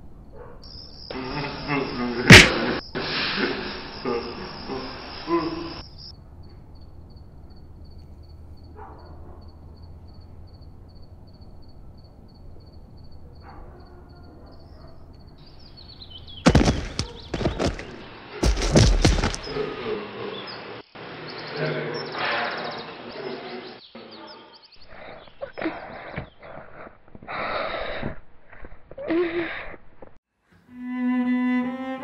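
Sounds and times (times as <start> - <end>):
insect chirping: 0.0 - 23.9, 24.5 - 26.9
loud knocks and thumps: 2.3 - 2.6, 16.4 - 19.6.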